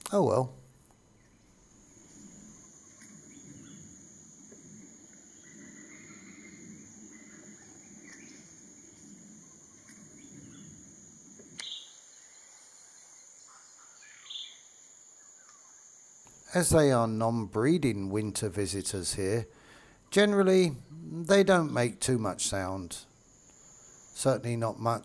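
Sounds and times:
high-pitched insect whine: 1.3s - 17.8s, 20.8s - 25.0s
bird chirps: 4.7s - 15.9s.

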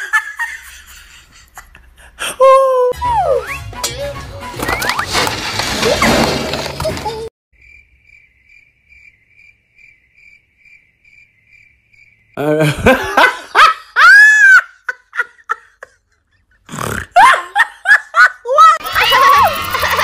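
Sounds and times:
faint cricket chirping: 7.6s - 12.6s.

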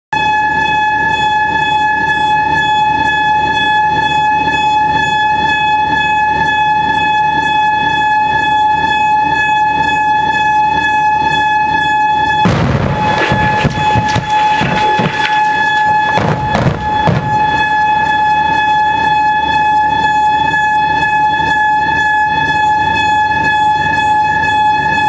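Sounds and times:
warning horn steady note: 0.2s - 25.0s.

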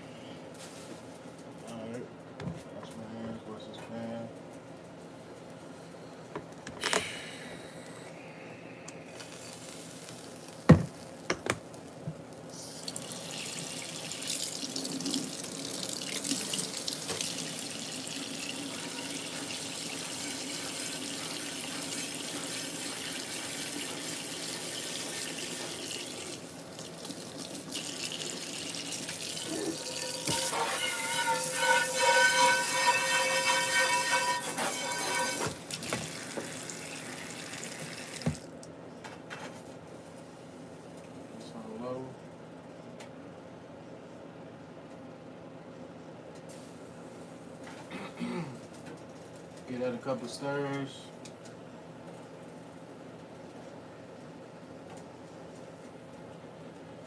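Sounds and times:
water running from tap: 12.7s - 38.5s.

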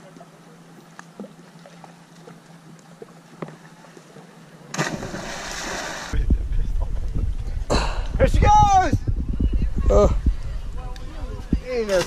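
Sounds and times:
faint steady hum: 0.0s - 11.9s
loud rushing splash: 4.8s - 6.2s.

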